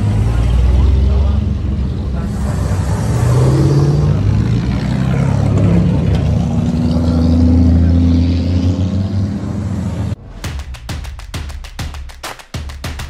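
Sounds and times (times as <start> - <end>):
racing car engines passing: 0.0 - 10.4.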